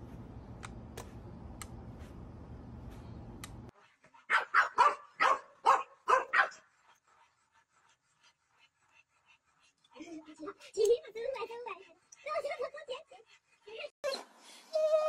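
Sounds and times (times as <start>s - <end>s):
faint low hum: 0.0s - 3.7s
light clicks: 3.3s - 3.7s
dog barking sharply: 4.3s - 6.6s.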